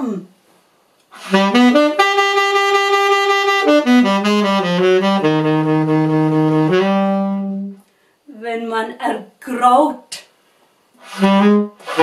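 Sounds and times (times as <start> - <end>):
tenor saxophone solo: 1.1 - 7.9, 11.0 - 12.0.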